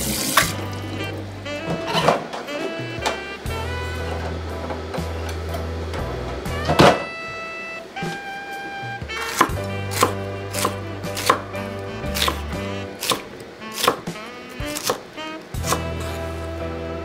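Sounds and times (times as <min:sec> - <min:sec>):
knife slicing pepper on board: 0:09.2 - 0:11.4, 0:12.1 - 0:15.0, 0:15.6 - 0:16.1.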